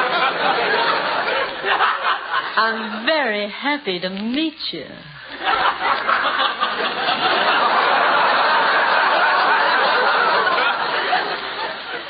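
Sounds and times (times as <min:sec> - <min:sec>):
audience laughing: 0:00.0 - 0:02.6, 0:05.3 - 0:12.0.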